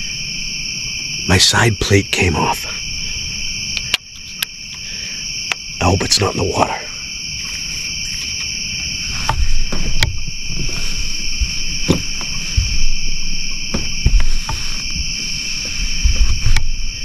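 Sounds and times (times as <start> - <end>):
night insects trilling: 0.0 - 17.0
handling knocks and thumps: 7.6 - 17.0.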